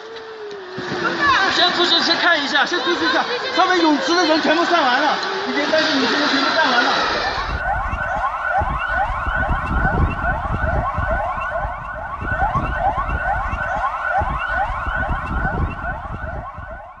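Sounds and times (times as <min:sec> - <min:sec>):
sirens whooping: 0:00.0 - 0:17.0
low rumbling noise: 0:07.0 - 0:17.0.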